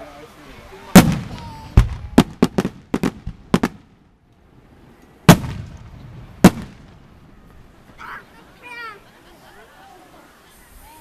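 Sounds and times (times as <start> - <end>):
fireworks booms: 0.9 - 4.2, 5.2 - 7.4.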